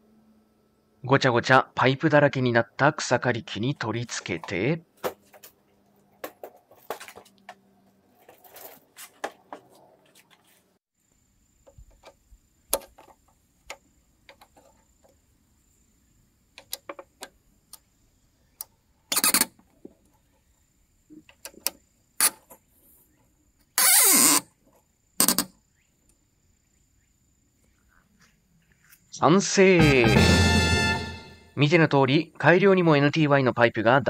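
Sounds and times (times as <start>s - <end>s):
loud short noise: 29.8s - 31.6s.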